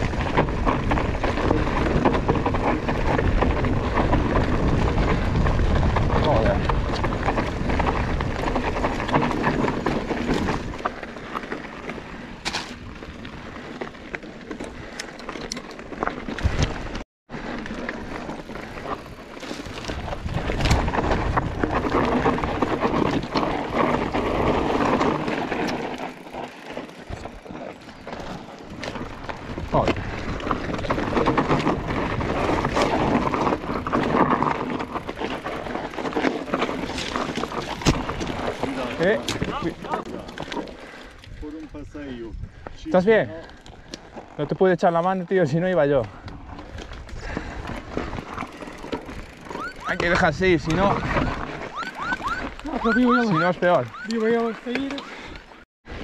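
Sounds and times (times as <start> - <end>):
wind buffeting microphone: 0.0 - 10.9, 18.5 - 25.0, 28.2 - 44.3, 46.0 - 54.2
bike rattling and knocking: 0.0 - 55.6
bike tyres rolling on gravel: 0.0 - 56.0.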